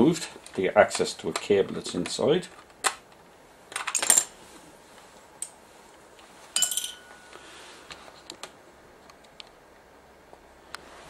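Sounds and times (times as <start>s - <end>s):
metallic clink with ringing note: 6.6s - 7.4s.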